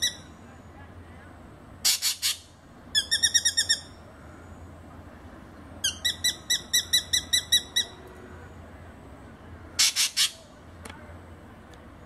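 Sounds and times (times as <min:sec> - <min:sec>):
drongo calling: 0:00.0 - 0:00.4, 0:01.8 - 0:04.2, 0:05.8 - 0:08.1, 0:09.8 - 0:10.6.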